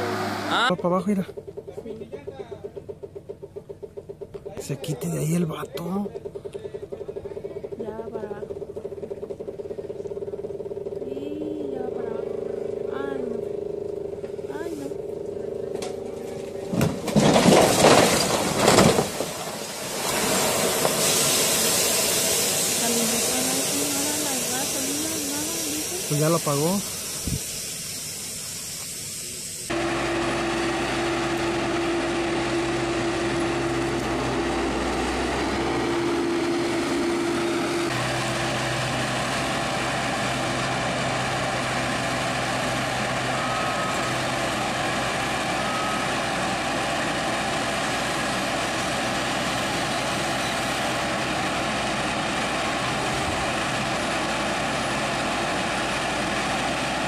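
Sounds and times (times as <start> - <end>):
diesel engine running: 0.0 - 57.0
steady whine: 7.2 - 17.3
steam hissing: 19.3 - 30.0.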